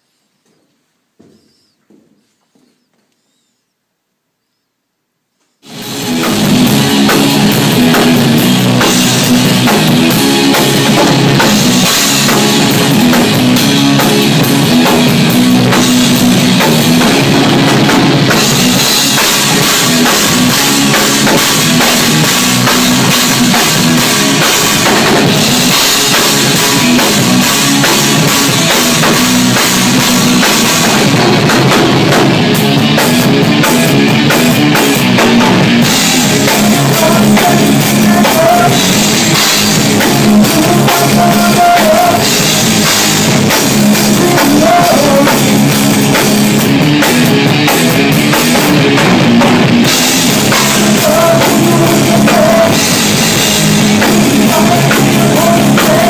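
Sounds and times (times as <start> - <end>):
bass guitar: 5.6 - 56.0
drum kit: 5.6 - 56.0
electric guitar: 5.6 - 56.0.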